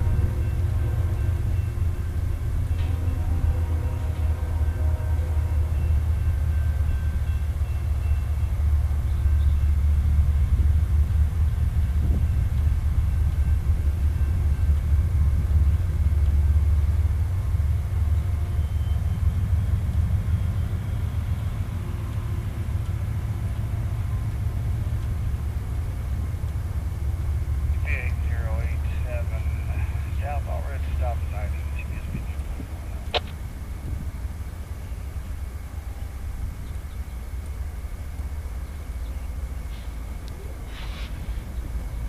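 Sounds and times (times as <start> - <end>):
distant diesel locomotives rumbling: 0.0 - 42.0.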